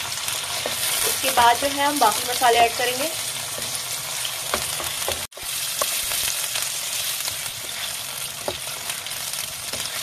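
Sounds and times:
chicken sizzling in hot oil: 0.0s - 10.0s
wooden spatula knocking on pan: 8.4s - 8.6s.

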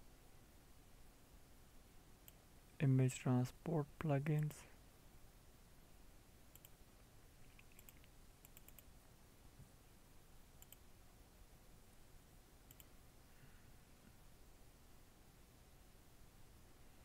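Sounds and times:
computer mouse clicks: 6.5s - 6.8s, 7.4s - 8.9s, 10.6s - 10.9s, 12.7s - 13.0s.

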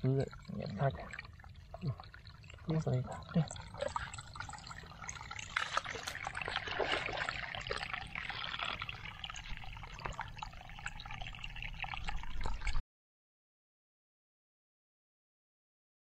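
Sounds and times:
water trickling and gurgling: 0.0s - 12.8s
small splashes: 0.4s - 10.4s.

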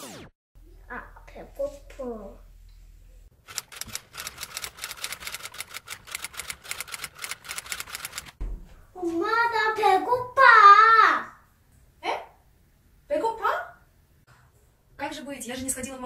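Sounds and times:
rapid typing on keyboard: 3.5s - 8.4s.

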